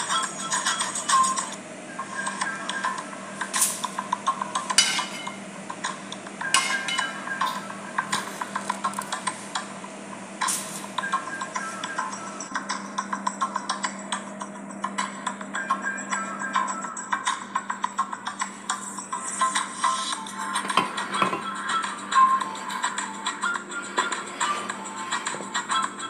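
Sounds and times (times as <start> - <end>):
metal spoon scraping metal pan: 4.7 - 5.4, 6.6 - 7.6, 23.8 - 25.7.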